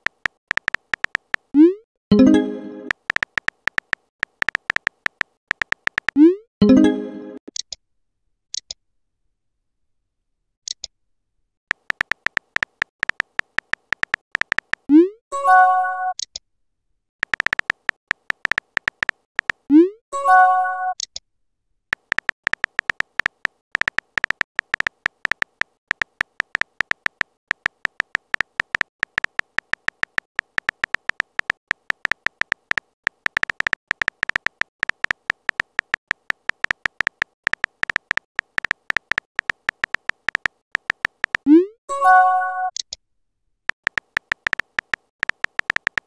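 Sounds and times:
keyboard tapping clicks: 0.0s - 1.6s, 2.2s - 6.3s, 11.7s - 14.9s, 17.2s - 19.7s, 21.9s - 41.5s, 43.7s - 46.0s.

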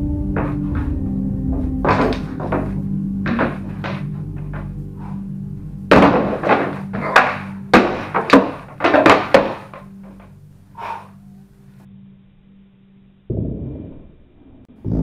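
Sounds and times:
steady low drone: 0.0s - 15.0s
swords striking shields: 1.9s - 4.0s, 5.9s - 10.2s.

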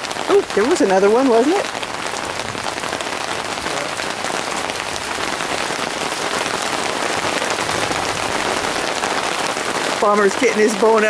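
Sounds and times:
heavy rain pouring: 0.0s - 11.0s.

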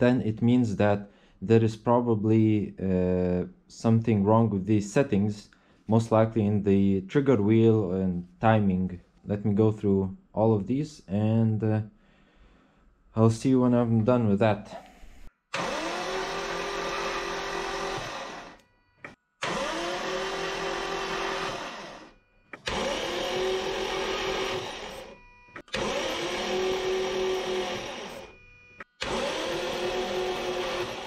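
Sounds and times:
starter motor cranking engine: 15.5s - 31.0s.

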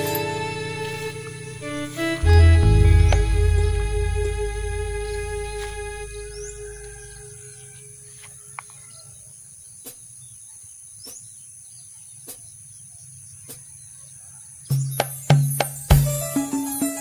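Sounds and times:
soft background music: 0.0s - 8.0s.

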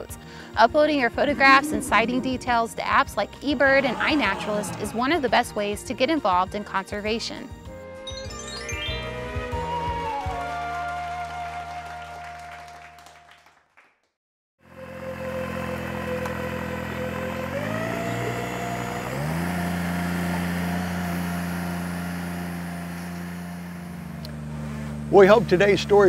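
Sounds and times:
boat engine running: 0.0s - 7.4s, 14.6s - 26.0s.

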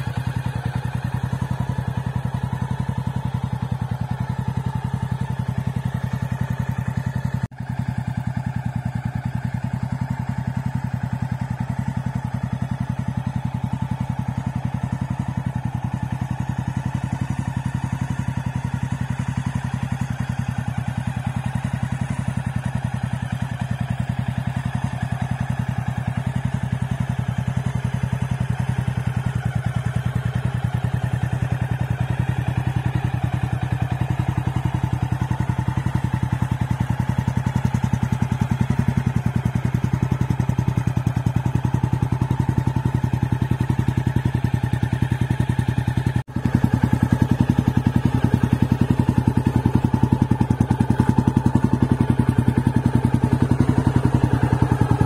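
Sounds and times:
motorcycle engine idling: 0.0s - 55.0s.

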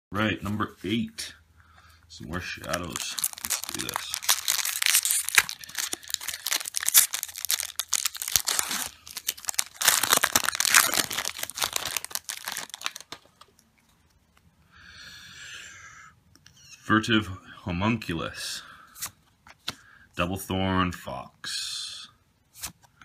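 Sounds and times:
foil wrapper tearing and crumpling: 2.6s - 13.3s.

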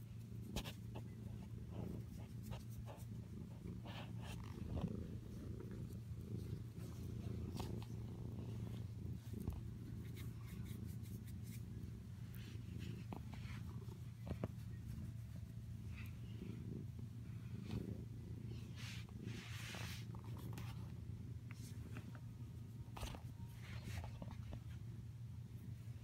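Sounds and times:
cat purring: 0.0s - 26.0s
fur rubbing against phone: 18.7s - 20.8s.

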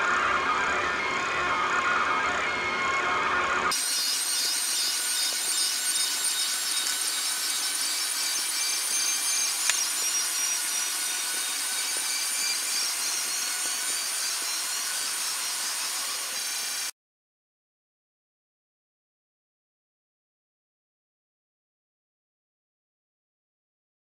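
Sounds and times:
printer mechanical whir: 0.0s - 16.9s.

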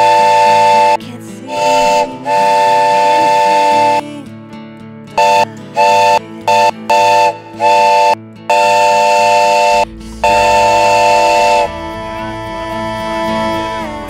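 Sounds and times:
censor bleeps: 0.0s - 4.1s, 5.2s - 11.7s.

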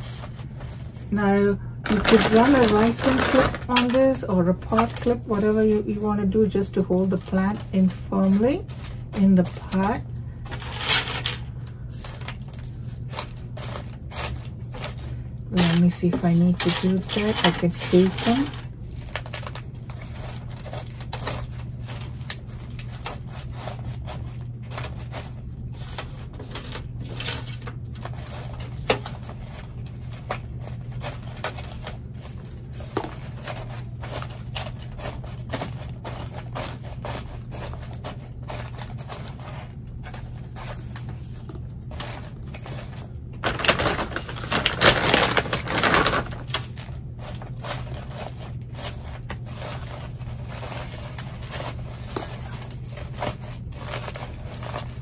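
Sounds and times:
rustling scrape: 0.0s - 1.2s, 10.5s - 18.6s, 29.3s - 55.0s
steady low hum: 0.0s - 55.0s.

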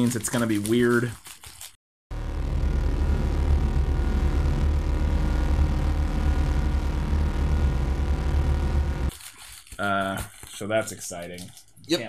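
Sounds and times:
deep rumbling drone: 2.1s - 9.1s.

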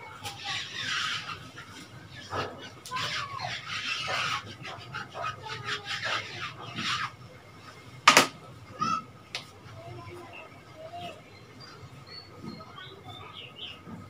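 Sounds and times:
duster rubbing whiteboard: 0.0s - 7.2s
sharp knock: 8.1s - 8.4s.

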